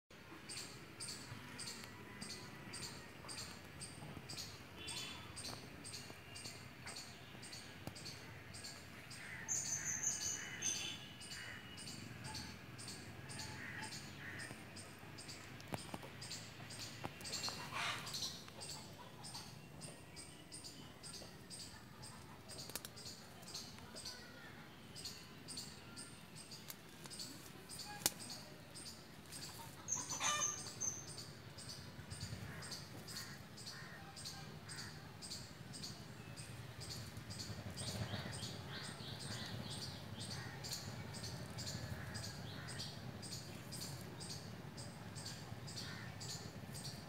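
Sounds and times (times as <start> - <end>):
bird chirping: 0.3 - 47.0
faint sharp clicks: 22.5 - 23.0, 27.9 - 28.4
low steady rumble: 28.7 - 47.0.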